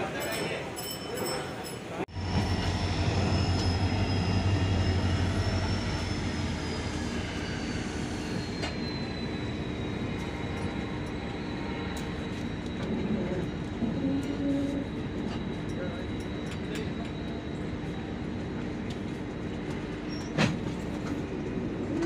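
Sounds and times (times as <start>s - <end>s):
train wheels on rails: 0.0s - 22.0s
high wheel squeal: 2.4s - 18.1s.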